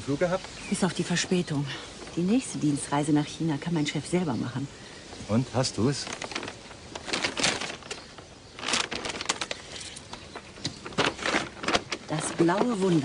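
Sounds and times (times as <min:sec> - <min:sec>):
paper bag rustling: 0:05.2 - 0:13.0.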